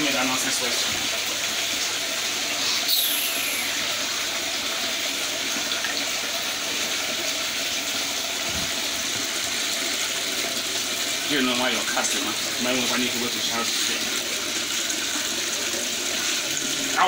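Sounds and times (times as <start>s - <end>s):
running water rushing: 0.0s - 17.0s.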